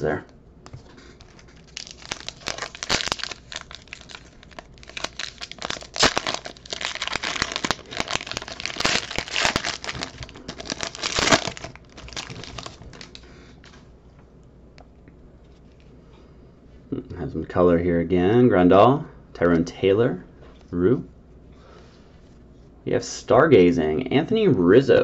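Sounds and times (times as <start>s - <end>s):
foil wrapper crinkling: 1.0s - 13.8s.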